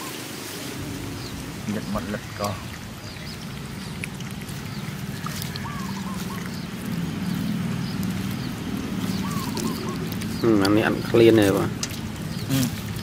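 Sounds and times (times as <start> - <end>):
puppies lapping milk: 0.8 - 13.0
puppy squeaky calls: 9.1 - 10.4.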